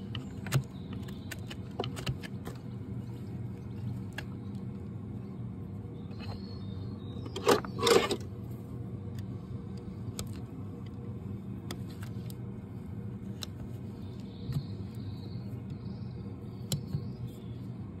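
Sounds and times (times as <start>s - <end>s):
low background hum: 0.0s - 18.0s
small clicks and snips: 9.1s - 11.0s, 16.6s - 17.0s.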